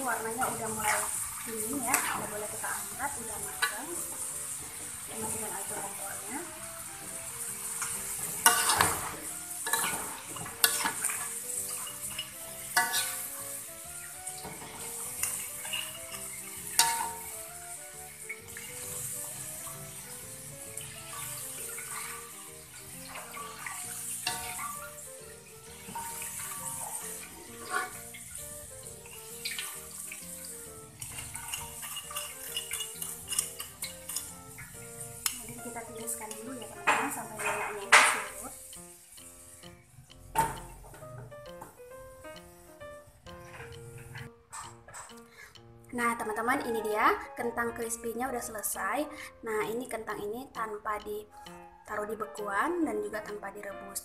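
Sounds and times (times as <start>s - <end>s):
oil sizzling: 0.0s - 54.0s
metal strainer scraping a wok: 6.8s - 13.6s, 14.3s - 17.4s, 23.0s - 25.0s, 25.8s - 30.4s, 31.0s - 35.4s.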